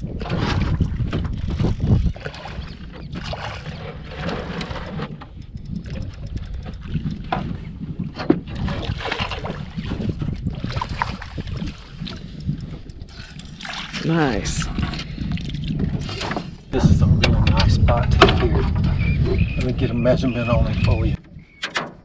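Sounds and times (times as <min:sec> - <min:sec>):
water splashing against boat: 0:00.0 - 0:21.9
wind buffeting microphone: 0:00.0 - 0:22.0
small clicks: 0:04.6 - 0:07.2, 0:11.4 - 0:14.0.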